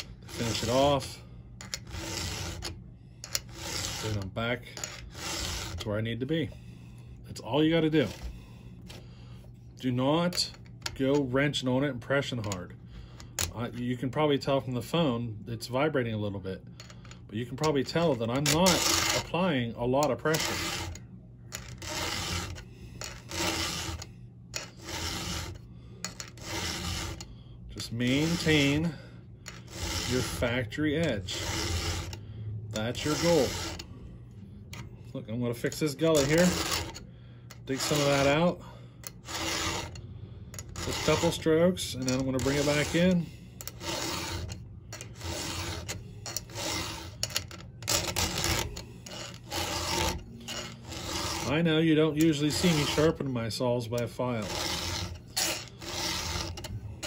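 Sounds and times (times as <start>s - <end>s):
file rasping on saw chain: 0.0s - 6.5s, 16.8s - 33.9s, 35.6s - 53.4s, 54.0s - 57.0s.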